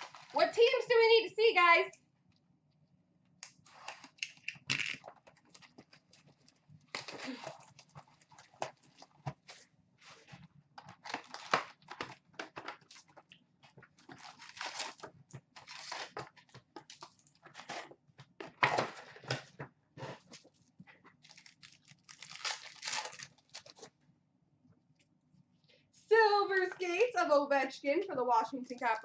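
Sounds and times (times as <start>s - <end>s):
shrink-wrap crinkling and tearing: 0.0s - 0.4s, 3.5s - 9.6s, 10.2s - 13.2s, 13.8s - 17.9s, 21.2s - 23.9s.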